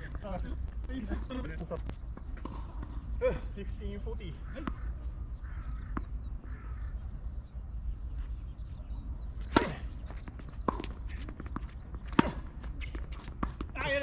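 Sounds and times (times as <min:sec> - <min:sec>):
steady low rumble: 0:00.0 - 0:13.8
tennis ball hit by racket: 0:09.4 - 0:13.9.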